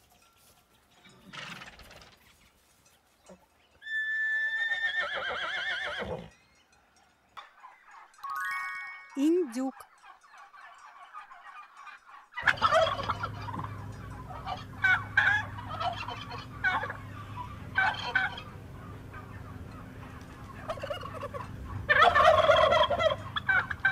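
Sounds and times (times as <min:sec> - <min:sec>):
turkey gobbling: 0:09.7 - 0:23.9
steady low hum: 0:12.4 - 0:23.9.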